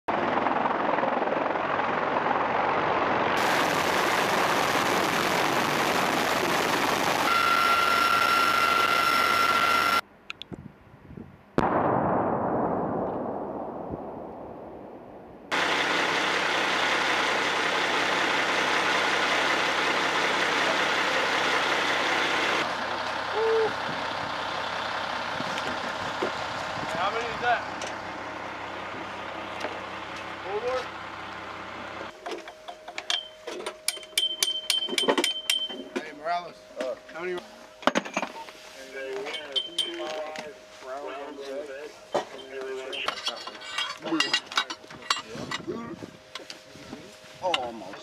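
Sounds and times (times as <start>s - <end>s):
helicopter rotor and turbine whine: 0.1s - 10.0s, 15.5s - 23.2s
distant artillery explosion boom: 11.6s - 15.6s.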